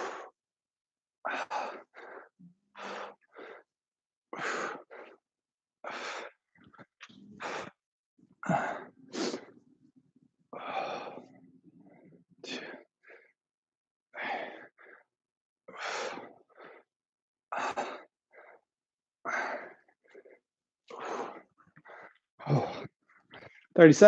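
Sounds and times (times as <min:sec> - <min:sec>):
man breathing hard: 0:00.0 - 0:00.3, 0:01.2 - 0:03.7, 0:04.3 - 0:05.2, 0:05.8 - 0:06.6, 0:07.3 - 0:07.8, 0:08.4 - 0:09.6, 0:10.5 - 0:13.4, 0:14.1 - 0:15.1, 0:15.7 - 0:16.9, 0:17.5 - 0:18.6, 0:19.2 - 0:23.6.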